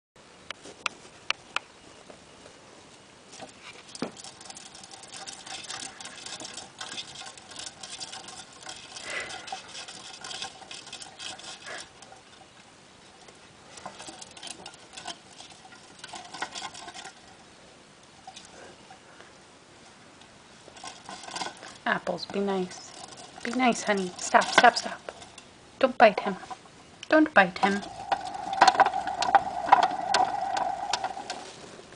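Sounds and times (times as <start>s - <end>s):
paws pattering on plastic wheel: 3.3s - 17.4s, 20.6s - 25.5s.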